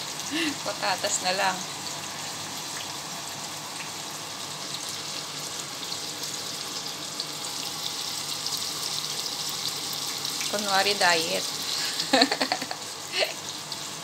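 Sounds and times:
onions sizzling in a pot: 0:00.0 - 0:14.0.

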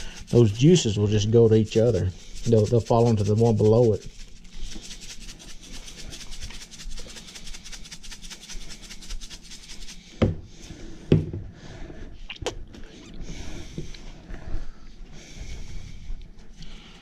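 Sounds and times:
spice shaker rattling: 0:00.0 - 0:10.1.

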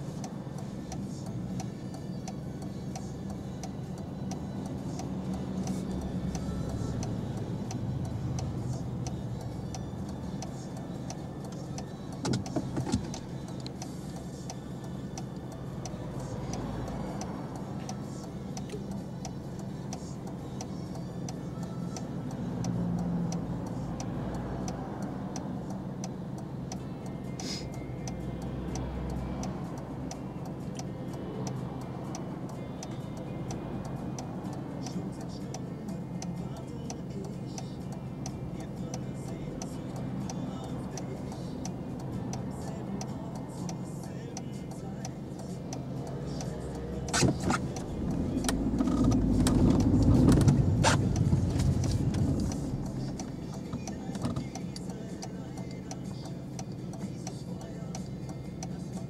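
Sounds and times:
cars passing: 0:00.0 - 0:59.0
turn signal ticking: 0:00.0 - 0:59.0
car engine idling: 0:32.0 - 0:59.0.

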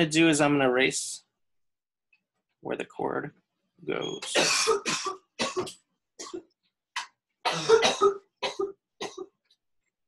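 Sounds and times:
person clearing throat: 0:04.2 - 0:09.4
person coughing: 0:04.2 - 0:09.4.

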